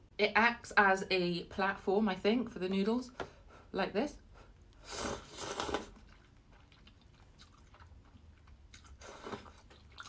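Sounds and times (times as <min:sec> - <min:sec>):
chewing noodles: 0:05.0 - 0:10.0.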